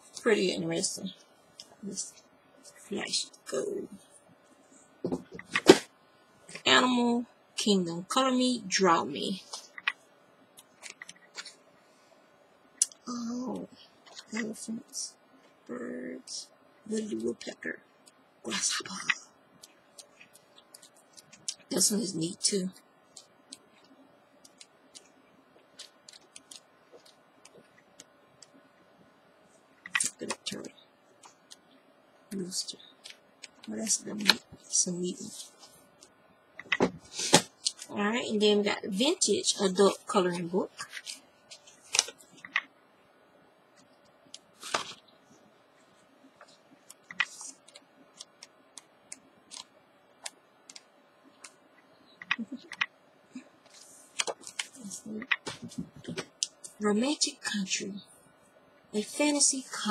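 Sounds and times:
paper crackling: 0:40.8 - 0:42.4
paper pages turning: 0:40.8 - 0:42.6, 0:44.4 - 0:45.0, 0:53.7 - 0:56.2
page flips: 0:40.9 - 0:42.5, 0:44.5 - 0:45.0.

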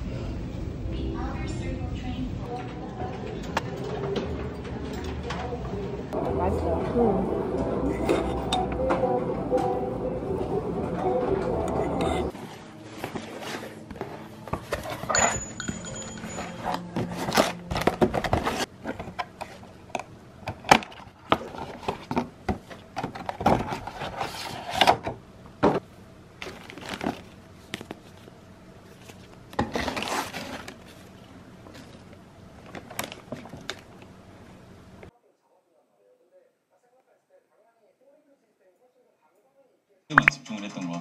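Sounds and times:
plastic wrap rustling and crinkling: 0:26.4 - 0:28.3, 0:28.9 - 0:32.0.

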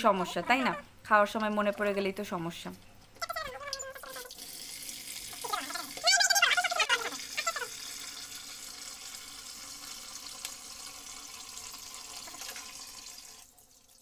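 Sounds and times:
tap running into water: 0:06.9 - 0:13.4.

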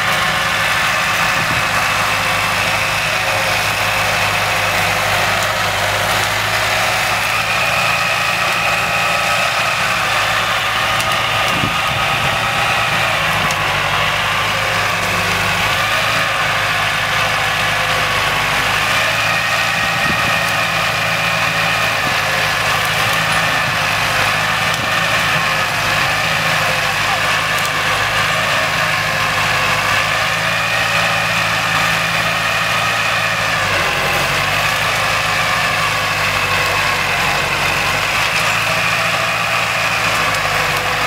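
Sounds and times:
loader engine running: 0:00.0 - 0:41.0.

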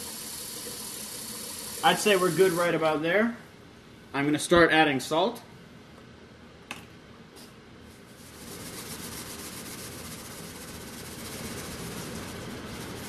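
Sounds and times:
salt pouring into water: 0:00.0 - 0:02.8.

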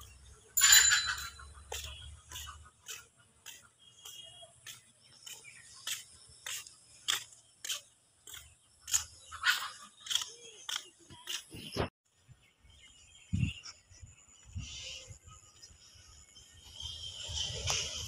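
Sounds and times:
sandal footsteps on brick path: 0:00.3 - 0:12.0.

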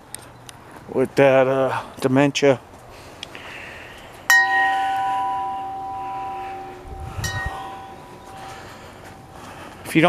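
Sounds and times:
metal chime ringing: 0:04.3 - 0:09.4
low bump: 0:04.4 - 0:09.3.

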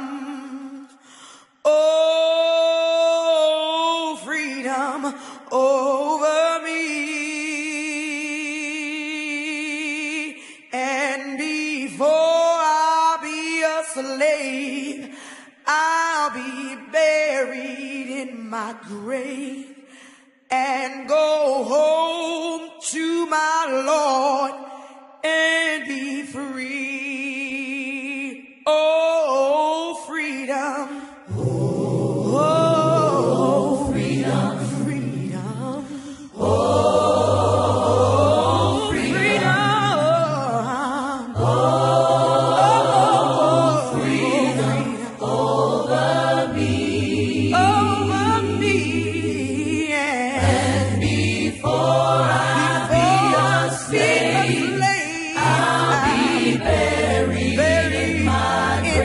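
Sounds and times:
choir singing in harmony: 0:01.7 - 0:15.1, 0:30.6 - 0:59.0.

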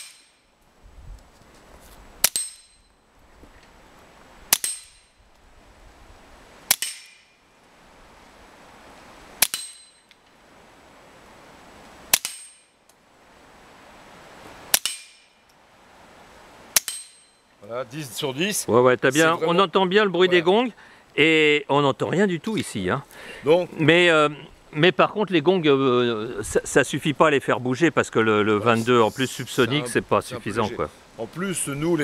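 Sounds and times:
suppressed pistol shots: 0:06.7 - 0:07.2.

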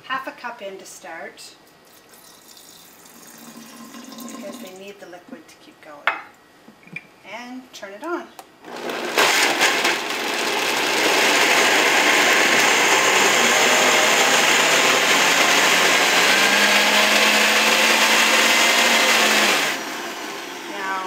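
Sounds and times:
blender motor running: 0:08.6 - 0:21.0.

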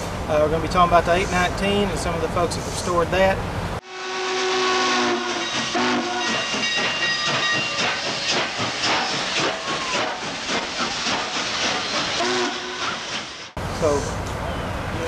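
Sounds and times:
steam locomotive exhaust chuffs: 0:04.0 - 0:14.3
steam hissing: 0:05.4 - 0:14.2.

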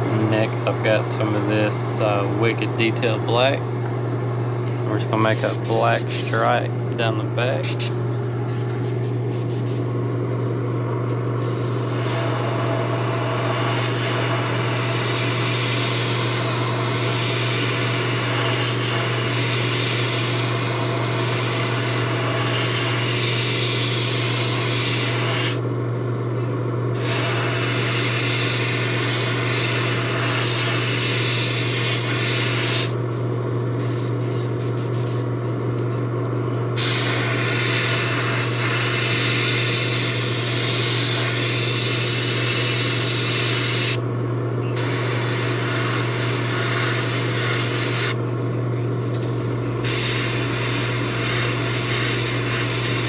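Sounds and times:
constant low hum: 0:00.0 - 0:53.0
airbrush spraying hiss: 0:05.3 - 0:06.4, 0:08.8 - 0:09.8, 0:11.4 - 0:25.6, 0:27.0 - 0:33.0, 0:33.8 - 0:35.2, 0:36.8 - 0:44.0, 0:49.8 - 0:53.0.

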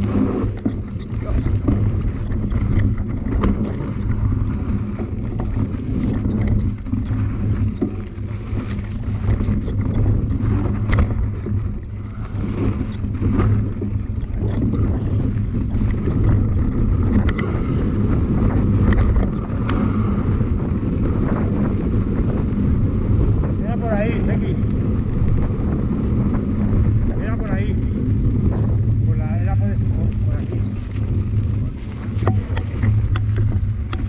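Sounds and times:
bike rattling over stony ground: 0:00.0 - 0:34.0
wind rushing over microphone: 0:00.0 - 0:34.0.

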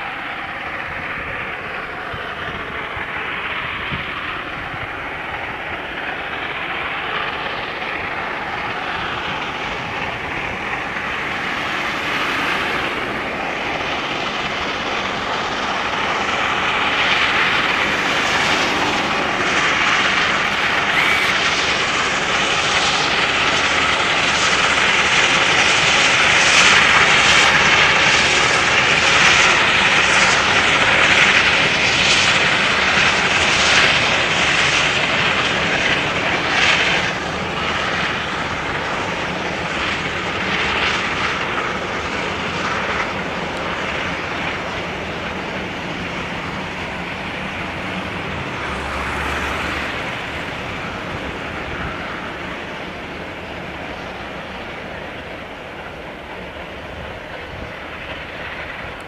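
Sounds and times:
steam locomotive exhaust roar: 0:00.0 - 0:59.0.

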